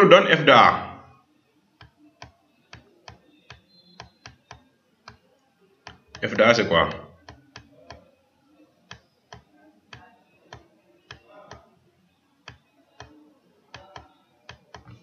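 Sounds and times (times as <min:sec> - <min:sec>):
computer mouse clicks: 0:01.8 - 0:05.2, 0:05.8 - 0:06.2, 0:07.2 - 0:08.1, 0:08.9 - 0:11.7, 0:12.4 - 0:15.0.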